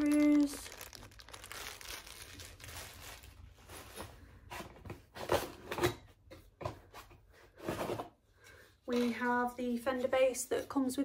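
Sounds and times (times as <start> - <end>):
plastic bag of screws rustling: 0.0 - 4.1
rummaging in cardboard box: 0.0 - 5.6.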